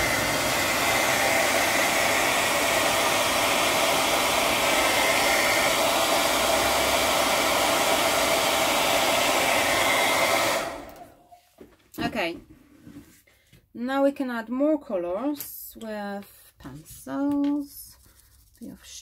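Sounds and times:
hair dryer blowing: 0.0 - 11.4.

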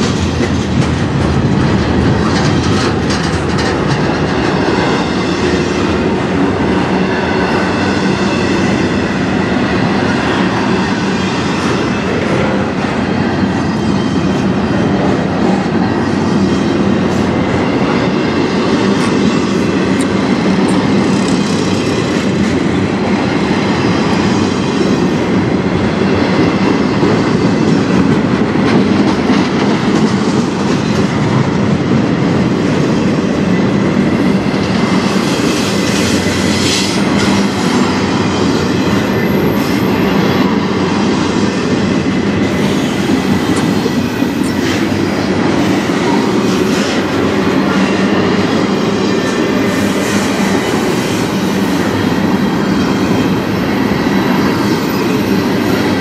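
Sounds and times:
wheels and couplings clattering: 0.0 - 5.0
freight train wheels rumbling: 0.0 - 56.0.

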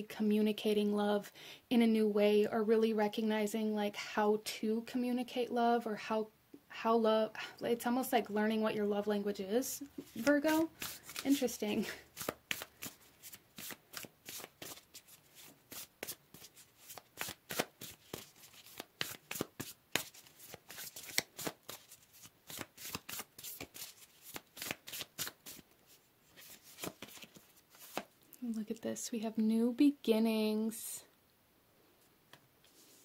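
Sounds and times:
cards being shuffled: 9.9 - 28.2.

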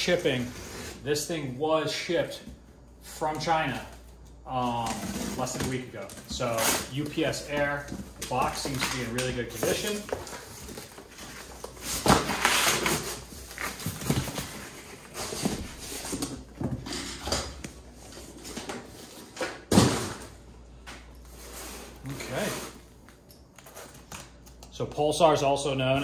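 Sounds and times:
cardboard rustling and scraping: 4.6 - 17.2.

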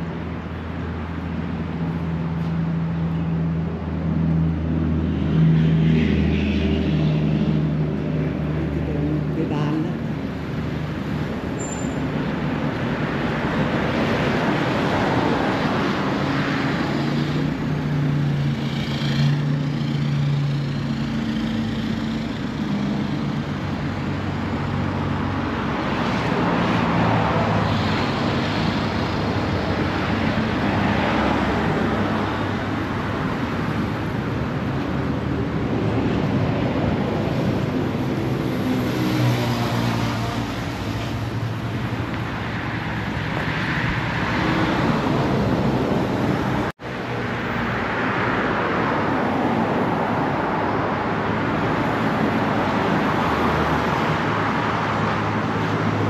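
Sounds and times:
tyre noise on road: 0.0 - 56.0.

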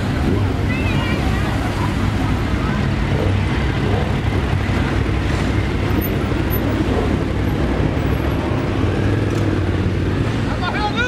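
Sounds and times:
motorcycle engines rolling past: 0.0 - 11.0.

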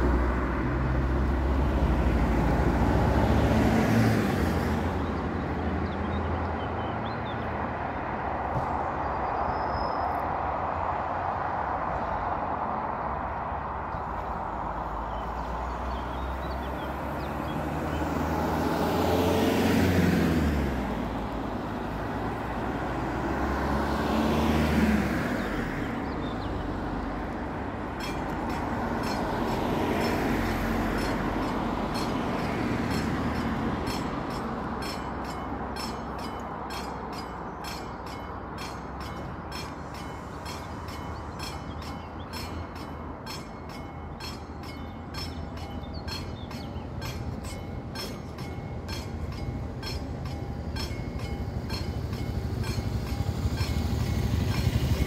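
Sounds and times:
cars passing by: 0.0 - 55.0
level crossing warning bell: 26.8 - 55.0.

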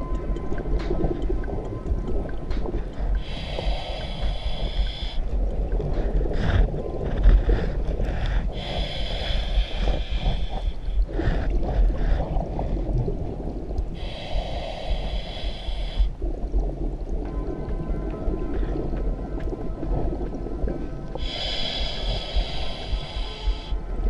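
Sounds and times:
exhaled bubbles gurgling: 0.0 - 24.0
regulator inhalation hiss: 3.2 - 5.2, 8.5 - 11.0, 14.0 - 16.1, 21.2 - 23.8.

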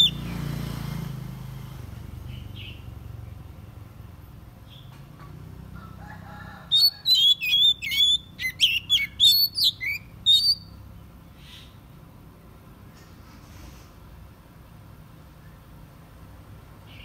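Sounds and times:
bird singing whistled notes: 0.0 - 0.4, 6.7 - 10.8.

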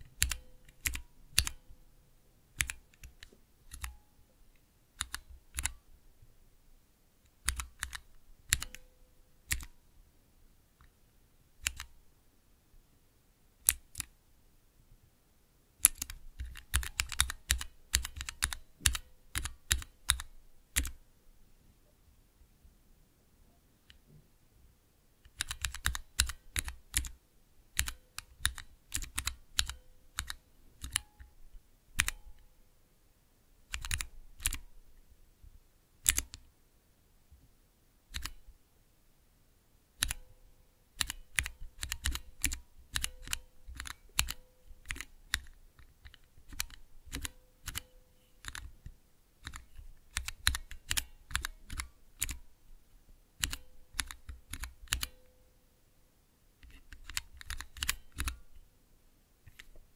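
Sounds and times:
mechanical keyboard typing: 0.1 - 1.6, 2.6 - 4.0, 5.0 - 5.8, 7.4 - 8.8, 9.5 - 9.7, 11.6 - 11.9, 15.8 - 21.0, 25.3 - 27.2, 27.8 - 31.2, 32.0 - 32.2, 33.7 - 34.6, 36.0 - 36.4, 38.1 - 38.4, 40.0 - 40.2, 41.0 - 48.7, 49.4 - 52.4, 53.4 - 55.2, 56.6 - 58.4.

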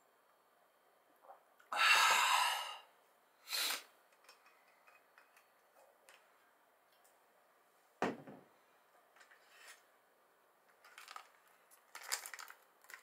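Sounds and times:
man exhaling breathily: 1.7 - 2.9.

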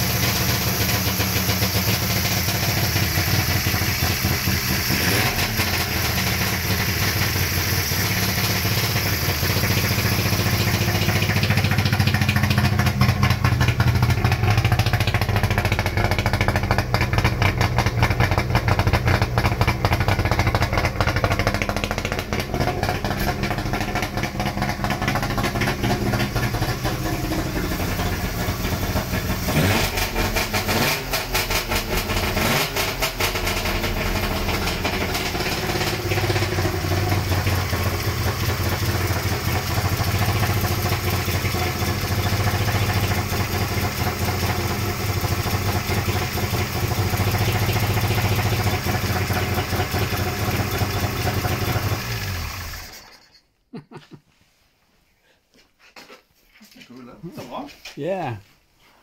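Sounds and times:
two-stroke engine revving and idling: 0.0 - 53.3.

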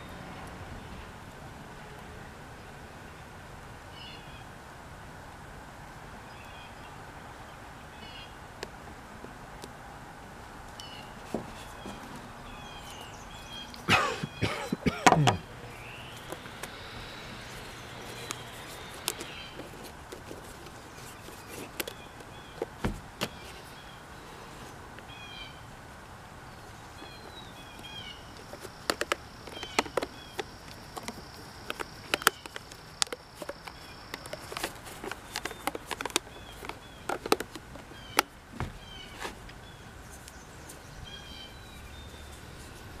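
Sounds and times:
bird chirps: 10.8 - 19.8.

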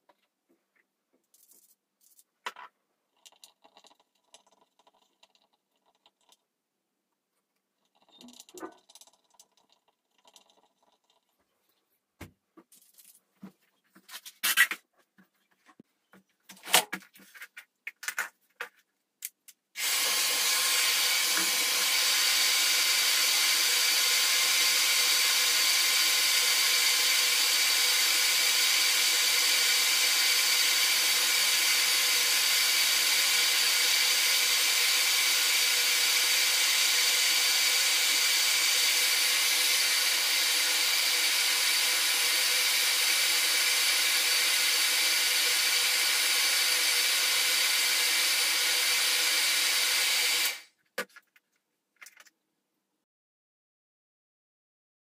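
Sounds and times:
hair dryer blowing: 19.8 - 50.7.

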